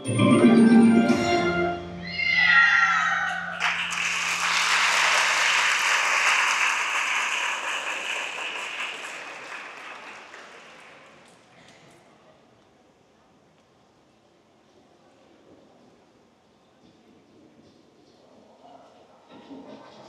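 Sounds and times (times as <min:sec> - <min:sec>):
music falling run of notes: 0:00.0 - 0:02.1
audience applause: 0:03.3 - 0:11.5.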